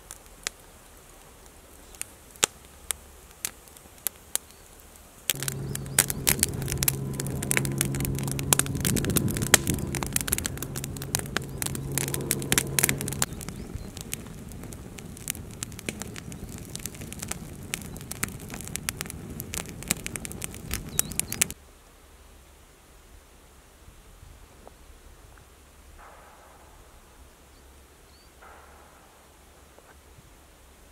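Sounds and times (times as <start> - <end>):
campfire crackling and popping: 0.0 - 21.6
low multi-tone hum: 5.3 - 21.6.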